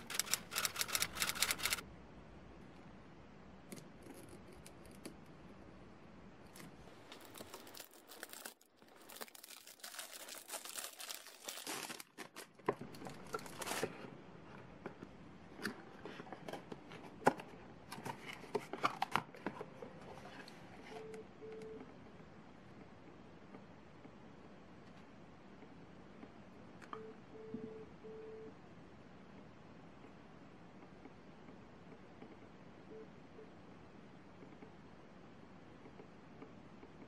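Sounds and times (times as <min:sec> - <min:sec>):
cellophane wrap crinkling and tearing: 0:06.6 - 0:14.0.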